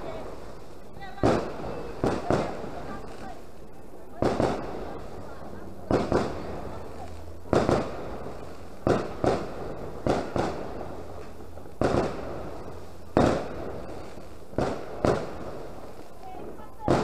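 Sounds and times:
firecrackers banging: 0:00.0 - 0:17.0.

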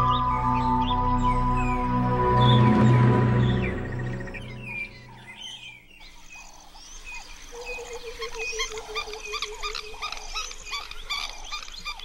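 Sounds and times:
lower wavering bird call: 0:00.0 - 0:05.8
birds chirping: 0:00.0 - 0:12.0.

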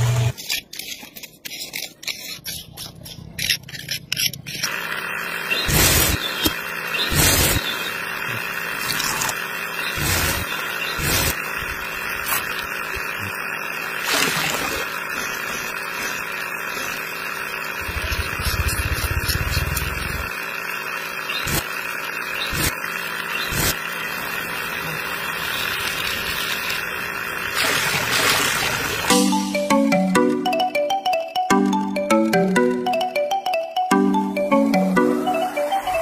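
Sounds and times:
small electric motor whirring: 0:00.0 - 0:27.7.

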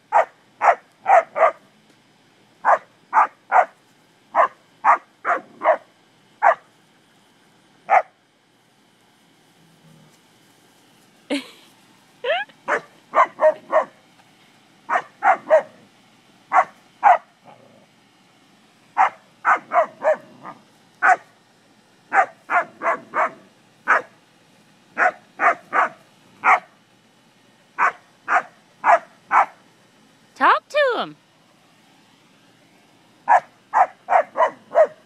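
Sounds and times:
dog barking: 0:00.1 - 0:01.6, 0:02.6 - 0:06.6, 0:07.9 - 0:08.1, 0:12.7 - 0:14.0, 0:14.9 - 0:15.8, 0:16.5 - 0:17.3, 0:19.0 - 0:21.3, 0:22.1 - 0:24.1, 0:25.0 - 0:26.7, 0:27.8 - 0:29.6, 0:33.3 - 0:35.0.

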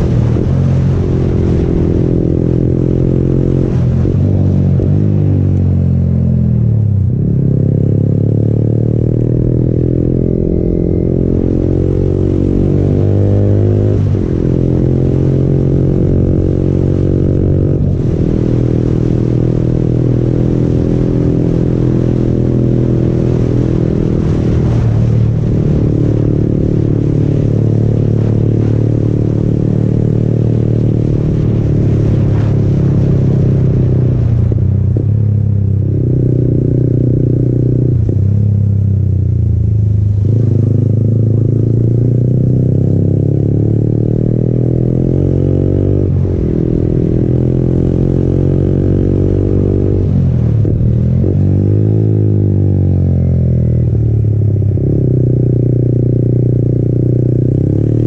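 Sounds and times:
wind rush: 0:00.0 - 0:05.4, 0:09.4 - 0:36.9, 0:44.3 - 0:52.2
motorcycle engine: 0:00.0 - 0:58.0.

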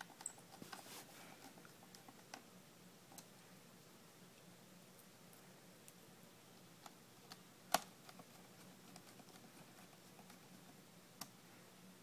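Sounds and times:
fingers clicking laptop parts: 0:00.0 - 0:00.8, 0:06.8 - 0:11.3
faint low hum: 0:00.0 - 0:12.0.

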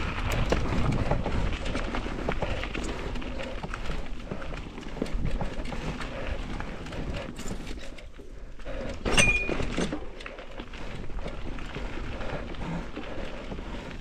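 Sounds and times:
bike rattling: 0:00.0 - 0:14.0.

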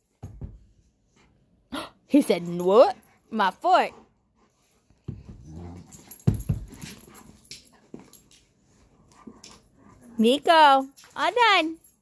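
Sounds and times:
dogs scuffling: 0:05.0 - 0:11.4
dogs growling roughly: 0:05.3 - 0:06.1.

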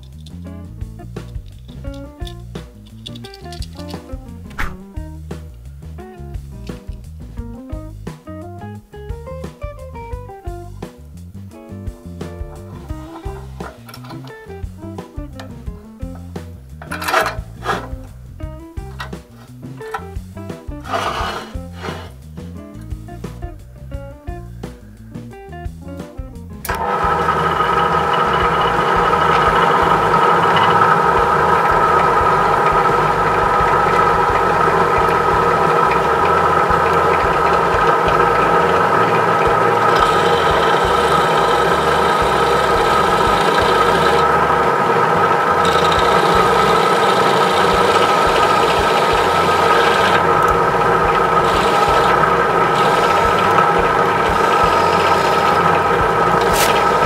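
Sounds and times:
drill press motor hum: 0:12.5 - 0:14.4, 0:16.8 - 0:18.2, 0:20.8 - 0:22.2, 0:26.7 - 0:57.0
drill bit hissing through metal: 0:12.7 - 0:14.0, 0:20.8 - 0:22.3, 0:26.7 - 0:57.0.

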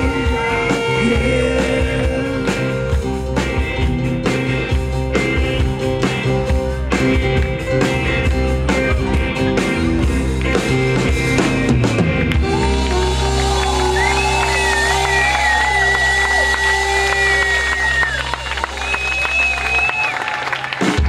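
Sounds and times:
live rock band playing: 0:00.0 - 0:21.0
audience cheering: 0:12.3 - 0:21.0
high whistle: 0:13.9 - 0:20.2.

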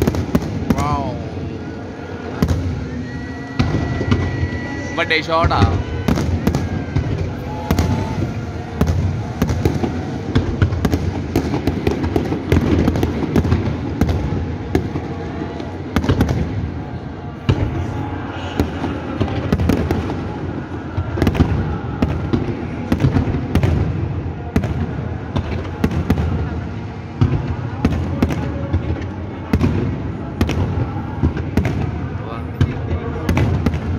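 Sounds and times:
fireworks bangs and cracks: 0:00.0 - 0:33.9
low rumble of fireworks: 0:00.0 - 0:33.9.

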